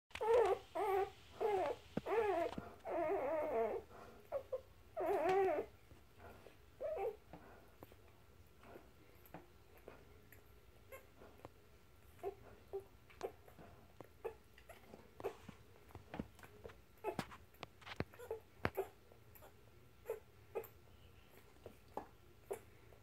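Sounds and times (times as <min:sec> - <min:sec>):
puppies squealing and whimpering: 0:00.1 - 0:05.8, 0:06.4 - 0:07.2, 0:12.1 - 0:15.6, 0:17.9 - 0:20.8.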